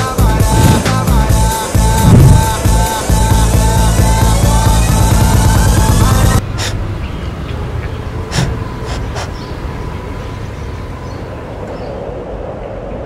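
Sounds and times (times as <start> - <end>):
low outdoor rumble: 0.0 - 13.0
animal sniffing: 8.3 - 9.5.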